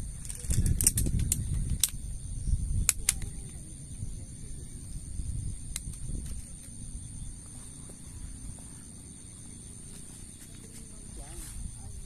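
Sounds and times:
rustling on grass: 7.2s - 12.0s.

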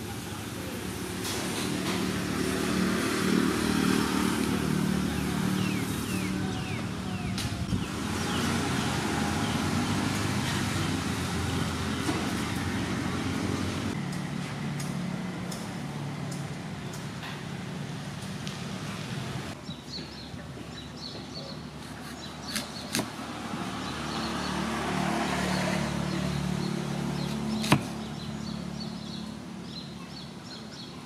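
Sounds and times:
vehicle engine passing by: 0.8s - 16.8s, 23.1s - 29.8s.

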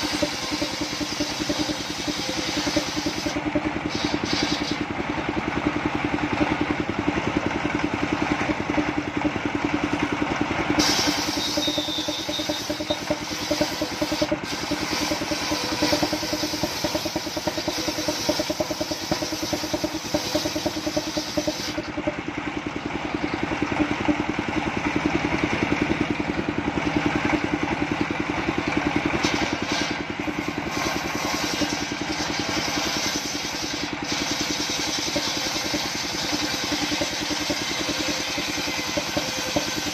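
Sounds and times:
saw cutting hiss: 0.0s - 4.9s, 10.8s - 21.9s, 29.2s - 39.9s
sawmill engine running: 0.0s - 39.9s.

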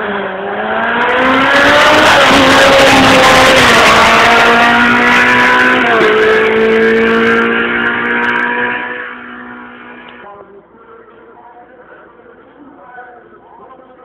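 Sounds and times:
race car engine accelerating: 0.0s - 10.2s.

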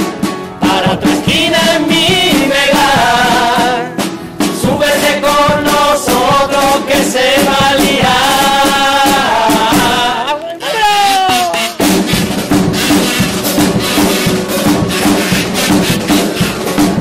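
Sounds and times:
drum: 0.0s - 17.0s
strummed guitars: 0.0s - 17.0s
men singing together: 0.6s - 11.7s.

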